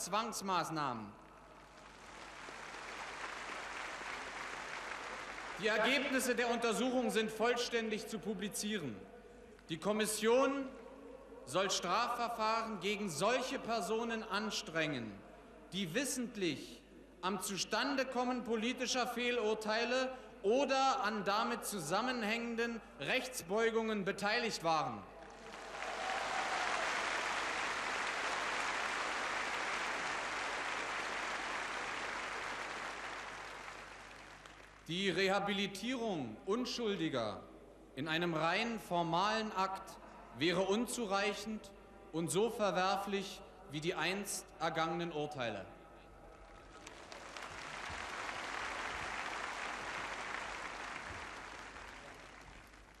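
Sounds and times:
large crowd applauding: 1.6 - 6.4, 25.2 - 34.9, 46.4 - 53.0.

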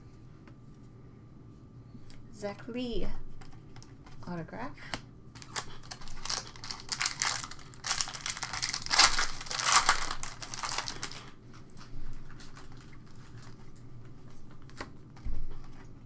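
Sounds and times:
foil wrapper tearing and crinkling: 5.4 - 11.4.

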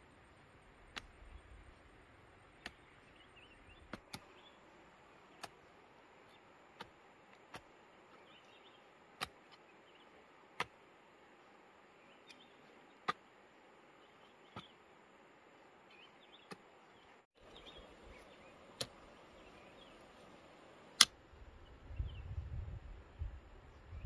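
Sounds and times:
blade chopping into dry soil: 0.9 - 1.2, 2.6 - 2.9, 3.8 - 4.3, 5.3 - 5.7, 6.7 - 8.3, 9.1 - 9.6, 10.5 - 10.8, 13.0 - 13.3, 14.5 - 14.8, 18.8 - 19.0.

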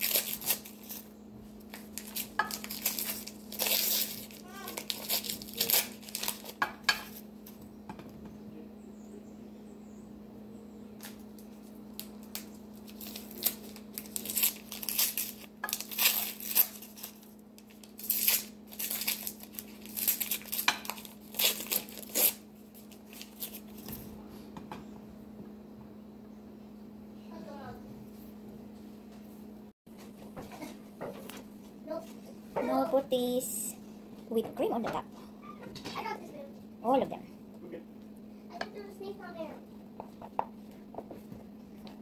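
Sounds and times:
paper wrappers crinkling and tearing: 0.0 - 6.6, 11.0 - 24.0.

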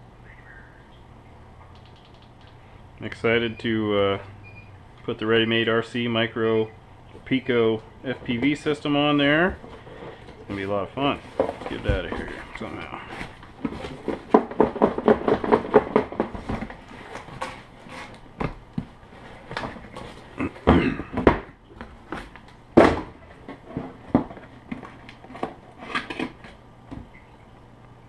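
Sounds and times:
cardboard scraping and rustling: 8.3 - 20.7.

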